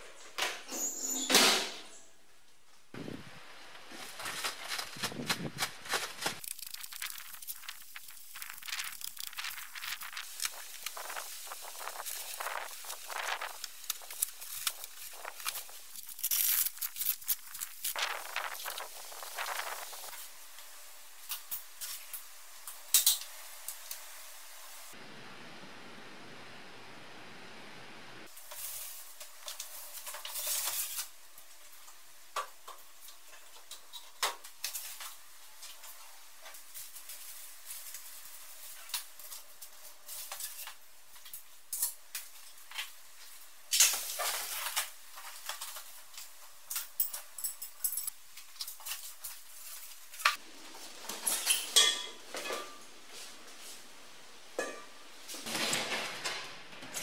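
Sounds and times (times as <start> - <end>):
cardboard and packaging rustling: 3.6 - 20.2, 42.7 - 46.9
metal parts clinking and rattling: 46.7 - 48.1.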